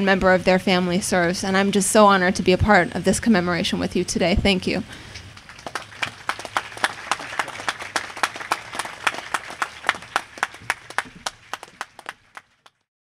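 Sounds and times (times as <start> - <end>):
small crowd applauding: 5.3 - 12.9.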